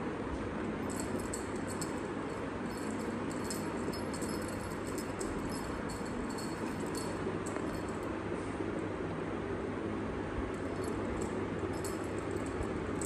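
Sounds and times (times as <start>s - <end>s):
steady low hum: 0.0s - 13.0s
cat toy jingling: 0.9s - 8.0s, 10.6s - 13.0s.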